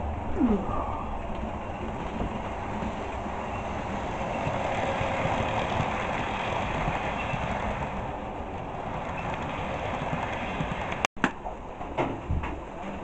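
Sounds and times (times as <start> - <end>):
model train running on track: 1.3 - 11.1.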